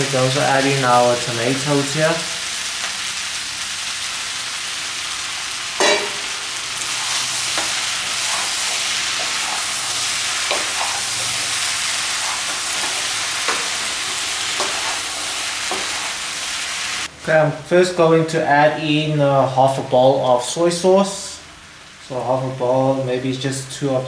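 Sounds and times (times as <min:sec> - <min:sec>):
food sizzling in hot oil: 0:00.0 - 0:17.1
faint scrapes in a wok: 0:05.8 - 0:17.1.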